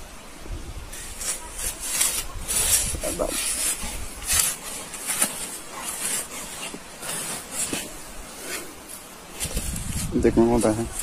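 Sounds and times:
shovel scraping gravelly soil: 0.9s - 11.0s.

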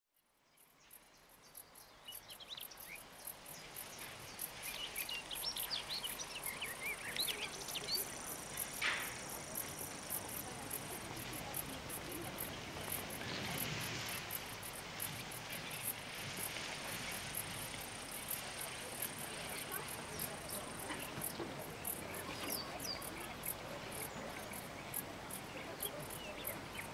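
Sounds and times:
crickets chirping: 0.5s - 26.9s.

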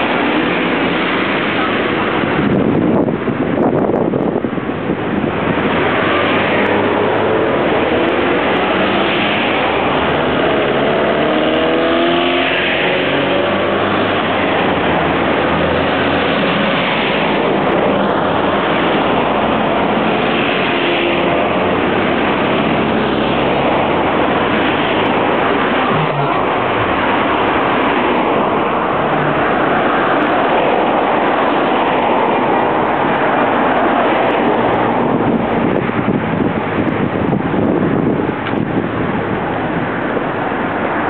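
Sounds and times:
road traffic passing: 0.0s - 41.0s
car accelerating: 4.9s - 36.9s.

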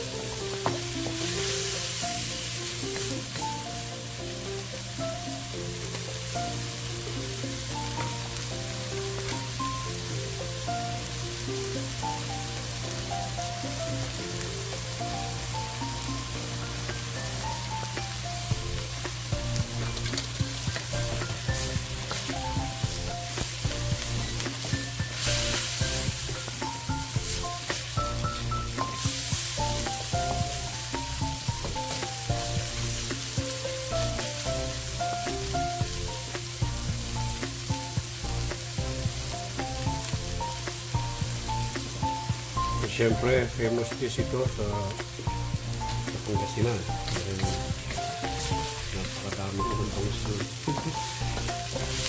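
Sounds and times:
food sizzling in a wok: 0.0s - 52.0s
soft background music: 0.0s - 52.0s
spatula scraping metal wok: 18.7s - 29.8s, 50.7s - 52.0s.

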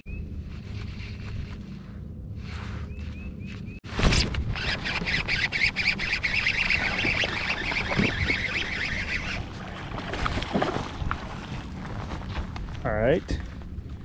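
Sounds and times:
fishing reel rasping whir: 4.5s - 9.5s.

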